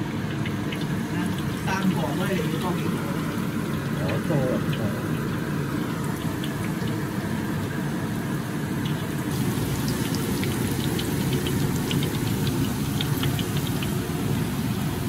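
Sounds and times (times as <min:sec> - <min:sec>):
oil sizzling and popping: 0:00.0 - 0:15.0.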